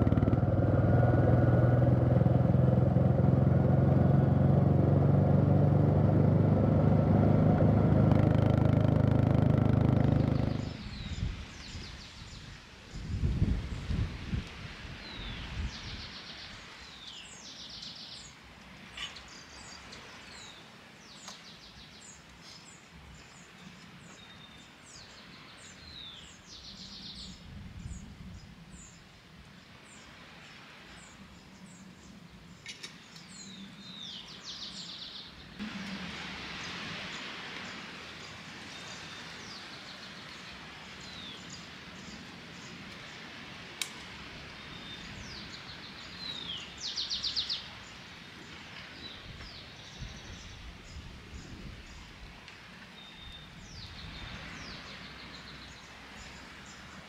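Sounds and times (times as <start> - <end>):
birds chirping: 0.0 - 12.4
background hiss: 0.9 - 57.0.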